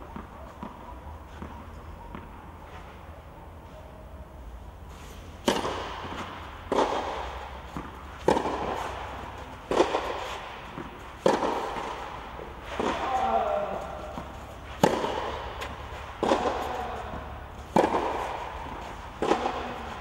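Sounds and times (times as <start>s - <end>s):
tennis ball hit by rackets: 5.4s - 20.0s.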